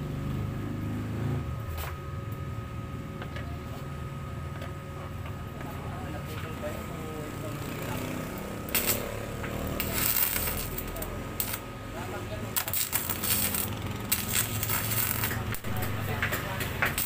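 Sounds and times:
welding arc buzzing: 6.0s - 17.0s.

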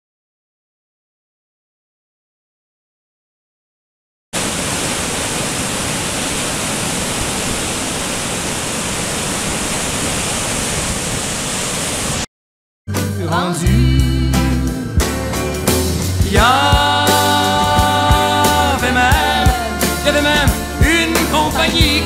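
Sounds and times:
waterfall rushing over rocks: 4.4s - 12.3s
music with singing: 12.9s - 22.0s.

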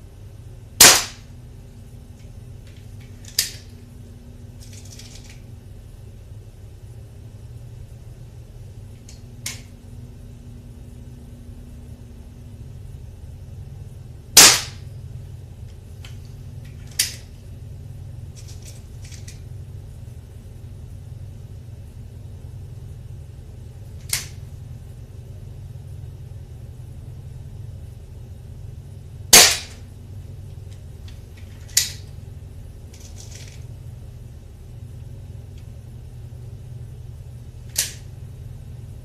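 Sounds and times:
air pistol cracks: 0.8s - 1.3s, 3.2s - 3.7s, 14.4s - 14.8s, 24.0s - 24.4s, 29.3s - 29.8s, 37.7s - 38.1s.

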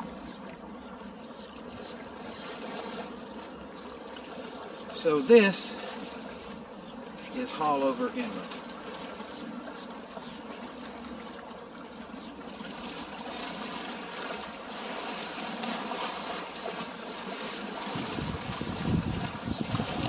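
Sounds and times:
water lapping against rocks: 0.0s - 20.0s
wind rumble on microphone: 17.8s - 20.0s.

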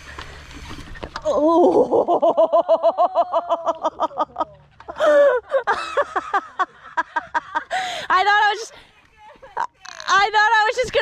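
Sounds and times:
woman's pulsing laugh-like voice: 1.4s - 8.0s.

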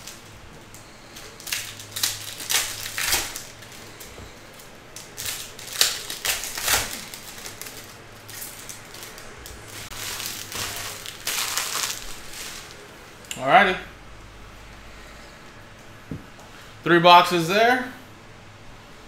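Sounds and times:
foil wrappers crinkling: 0.0s - 13.0s.

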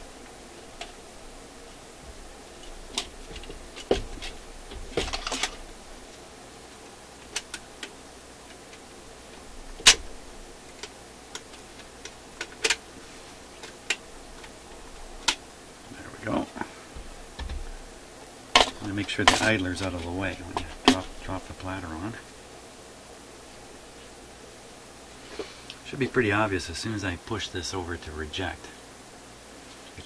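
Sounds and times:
turntable platter being handled: 2.0s - 6.2s, 18.5s - 21.4s.

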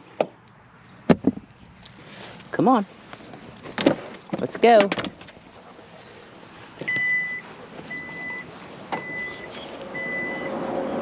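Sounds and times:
vehicle engine hum: 0.0s - 11.0s
reversing alarm beeping: 6.9s - 10.6s.

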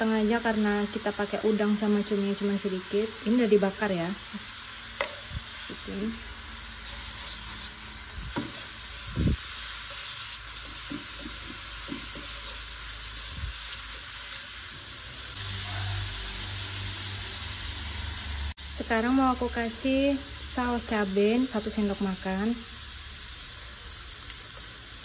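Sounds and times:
paste sizzling in a frying pan: 0.0s - 25.0s
spatula knocking and scraping pan: 5.0s - 5.3s, 8.3s - 8.8s, 9.8s - 12.6s.

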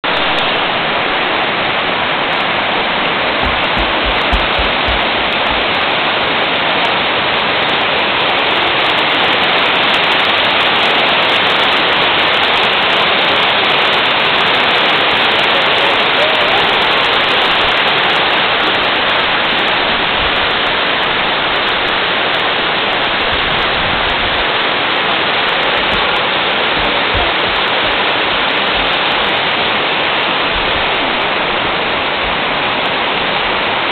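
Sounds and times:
water rushing over rocks: 0.0s - 33.9s.

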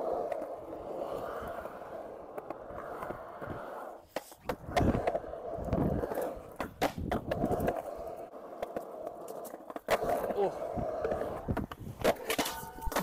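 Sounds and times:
skateboard clacking: 0.0s - 13.0s
skateboard wheels rolling: 0.0s - 13.0s.

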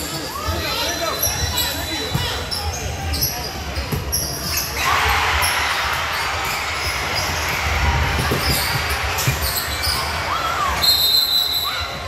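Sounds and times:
sneaker squeak: 0.2s - 4.9s, 8.3s - 12.0s.

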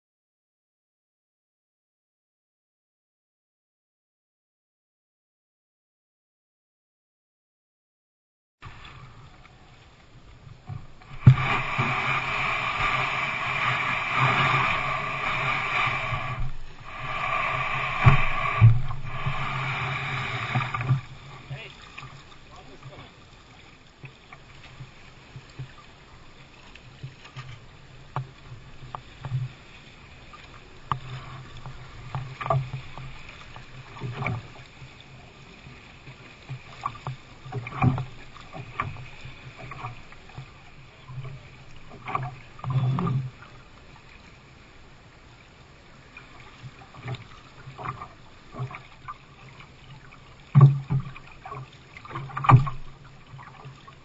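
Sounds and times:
paddle dipping through water: 8.6s - 54.0s
paddle knocks against hull: 11.1s - 12.0s, 36.8s - 40.0s, 50.5s - 53.6s.

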